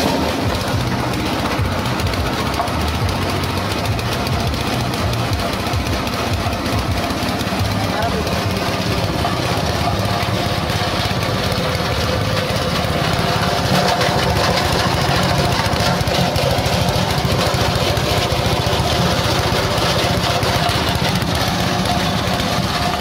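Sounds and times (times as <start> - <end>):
shredder grinding husks: 0.0 - 23.0
small petrol engine running: 0.0 - 23.0.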